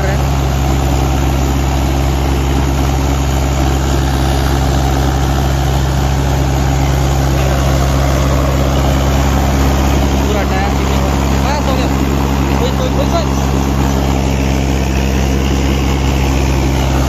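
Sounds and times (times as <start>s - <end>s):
tractor engines running hard: 0.0s - 17.0s.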